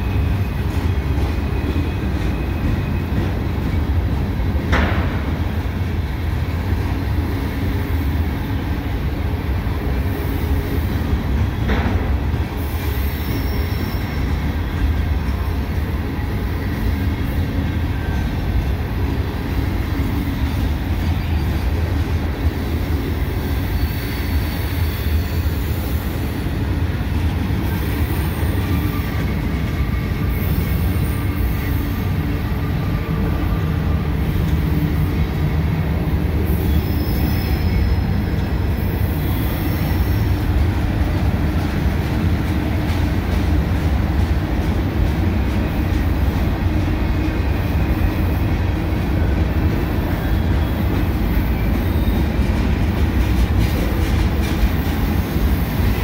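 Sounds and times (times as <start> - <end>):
freight cars rumbling on rails: 0.0 - 56.0
high-pitched wheel squeals: 12.7 - 15.6, 36.5 - 40.4.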